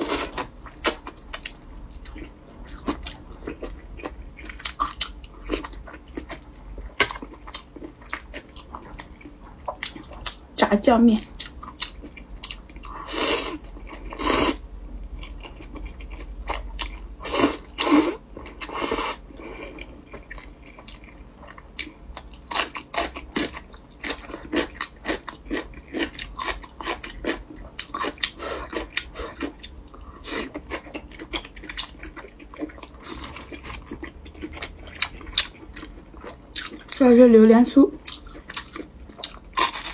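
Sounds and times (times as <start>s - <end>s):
chewing with wet mouth clicks: 0.6s - 10.4s, 15.2s - 17.2s, 19.6s - 37.0s, 38.0s - 39.9s.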